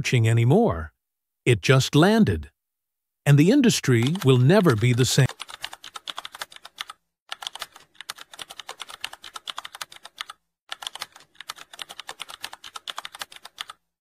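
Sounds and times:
keyboard key clicks: 4.0s - 5.4s.

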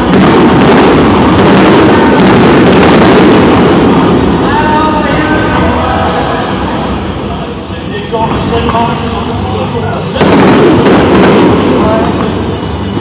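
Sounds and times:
fireworks bursting: 0.0s - 13.0s.

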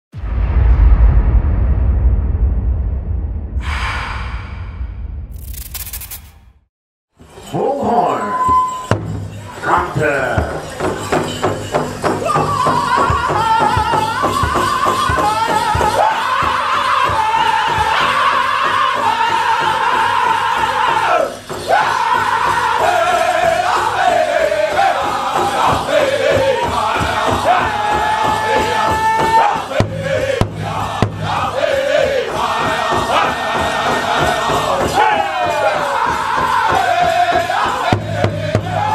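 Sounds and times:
large hand drum beat: 10.4s - 38.9s
high-pitched group singing: 12.2s - 38.9s.

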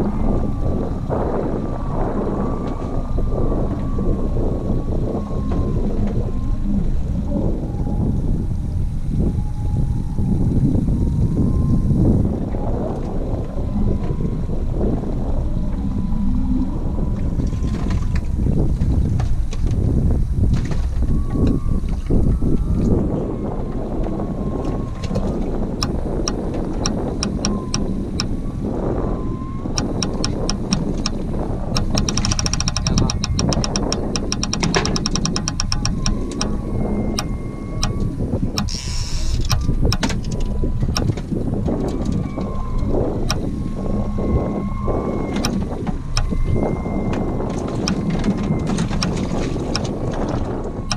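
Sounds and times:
outboard motor rumbling: 0.0s - 50.9s
wind buffeting microphone: 0.0s - 50.9s
sharp ticks: 25.8s - 28.3s, 29.8s - 36.6s, 37.2s - 41.2s, 45.4s - 46.4s.

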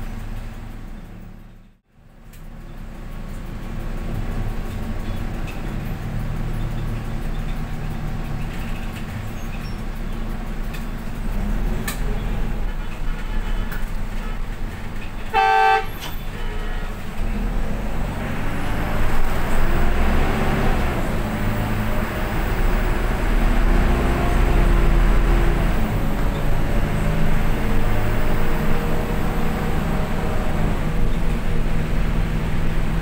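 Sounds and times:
vehicle engine and road noise: 0.0s - 33.0s
vehicle horn toot: 12.6s - 14.6s, 15.2s - 17.1s.

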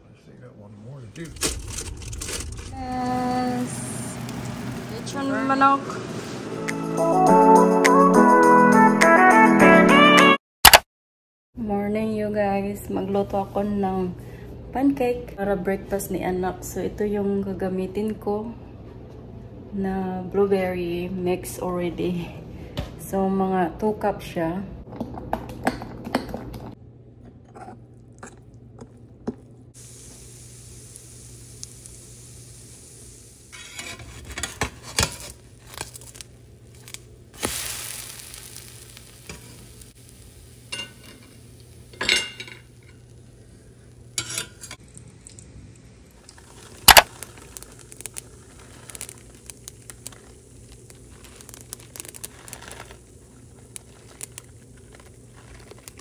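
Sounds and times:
low steady hum: 26.8s - 56.0s
pancakes sizzling in a frying pan: 29.8s - 56.0s
batter stirred in a mixing bowl: 46.3s - 56.0s.

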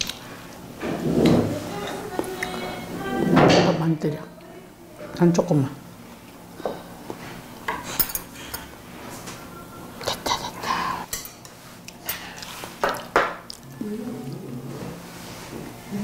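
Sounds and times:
cutlery and dishes clinking: 7.7s - 8.7s, 11.1s - 12.3s.

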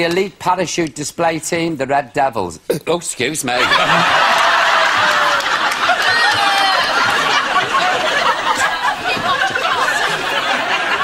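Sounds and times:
audience laughing: 3.6s - 11.0s.

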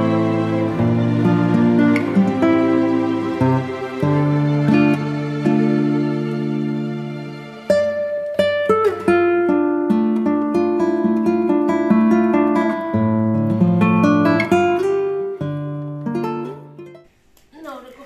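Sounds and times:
plucked acoustic guitar: 0.0s - 17.0s.

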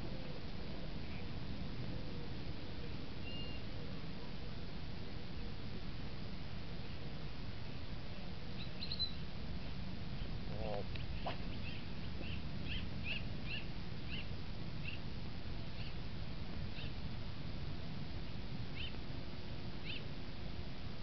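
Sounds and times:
small bird chirping: 8.6s - 9.2s, 10.2s - 15.1s, 15.7s - 16.0s, 16.7s - 17.0s, 18.8s - 19.0s, 19.8s - 20.1s.

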